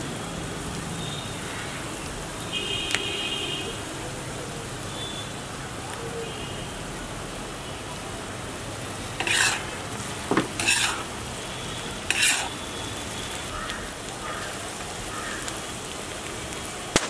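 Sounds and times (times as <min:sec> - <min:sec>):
onions sizzling in oil: 0:00.0 - 0:17.0
spatula scraping pan: 0:09.2 - 0:11.1, 0:12.1 - 0:12.6.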